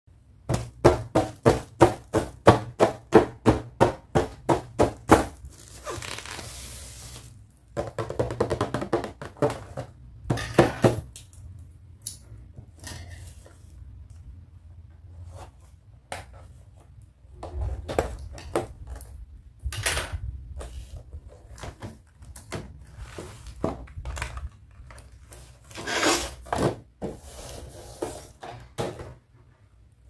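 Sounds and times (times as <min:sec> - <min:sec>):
plastic packaging crinkling: 0:05.4 - 0:07.5.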